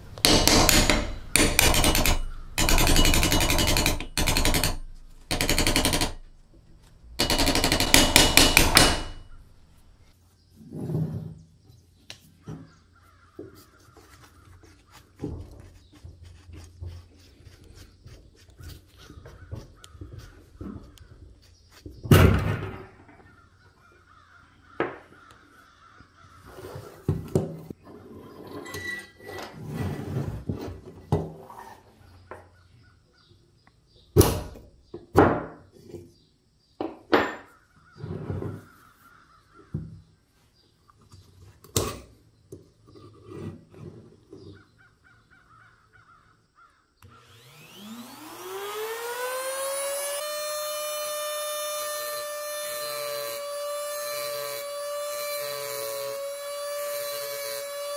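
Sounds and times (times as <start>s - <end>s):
metal parts knocking on wood: 0.0s - 9.7s.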